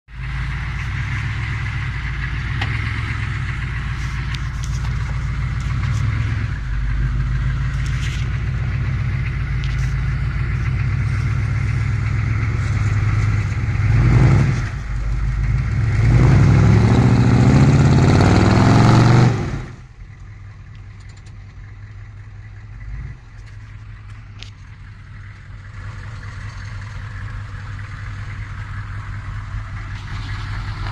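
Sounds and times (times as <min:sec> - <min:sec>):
truck engine revving: 0:00.1 - 0:19.9, 0:21.0 - 0:30.9
engine idling: 0:00.1 - 0:30.9.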